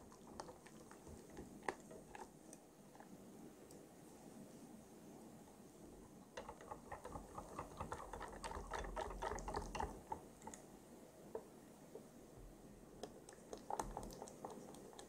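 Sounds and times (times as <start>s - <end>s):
whisk clicking against saucepan: 0.0s - 2.3s, 6.4s - 10.6s, 13.0s - 15.0s.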